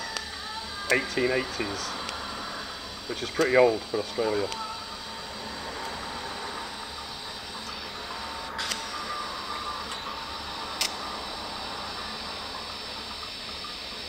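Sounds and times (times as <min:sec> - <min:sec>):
welding arc hissing: 0:00.0 - 0:14.0
sharp clicks: 0:10.8 - 0:11.0.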